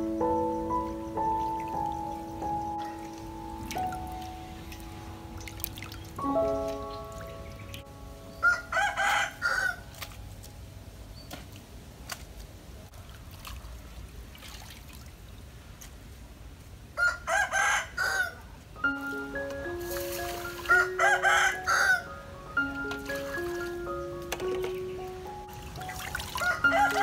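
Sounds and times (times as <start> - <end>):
rooster crowing: 8.4 - 9.8, 17.0 - 18.4, 20.7 - 22.2, 26.4 - 27.0.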